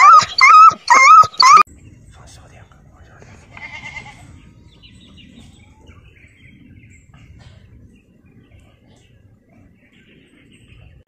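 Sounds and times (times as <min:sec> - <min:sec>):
wavering bird call: 0:00.0 - 0:01.7
bird chirps: 0:00.0 - 0:02.1
low outdoor rumble: 0:01.6 - 0:11.0.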